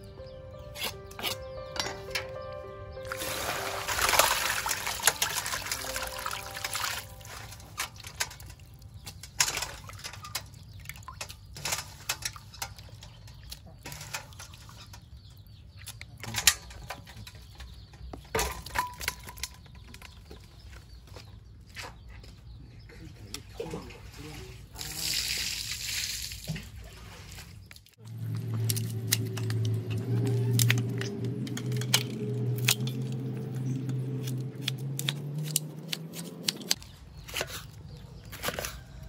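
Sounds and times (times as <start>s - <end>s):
water pouring into steel basin: 3.0s - 8.8s, 24.8s - 26.5s
splashes and clicks of washing: 3.0s - 20.5s, 24.6s - 37.7s.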